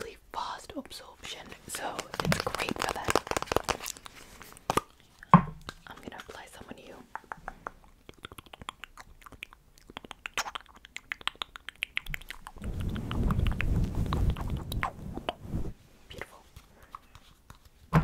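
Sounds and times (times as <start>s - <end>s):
low rubbing rumble: 12.6s - 15.8s.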